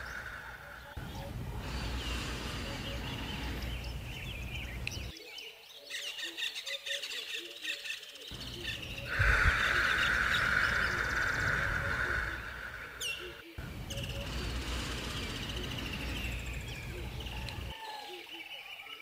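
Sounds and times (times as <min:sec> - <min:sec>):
high buzzing hiss: 0:00.0 - 0:05.1, 0:08.4 - 0:17.7
small birds chirping: 0:00.0 - 0:19.0.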